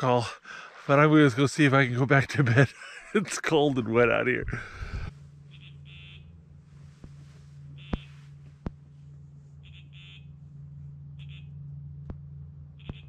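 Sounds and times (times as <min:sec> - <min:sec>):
steady low hum: 0:00.0 - 0:13.0
bite alarm high-pitched beeps: 0:05.5 - 0:06.2.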